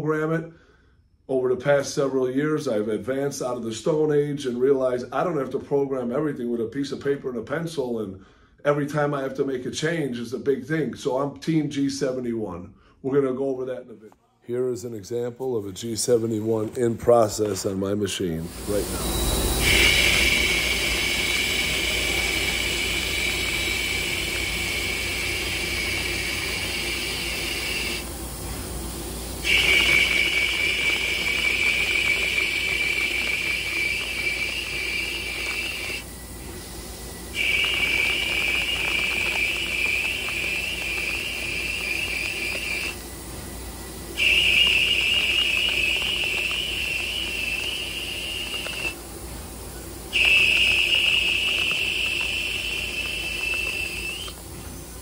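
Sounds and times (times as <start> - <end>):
lathe cutting whine: 18.4 - 55.0.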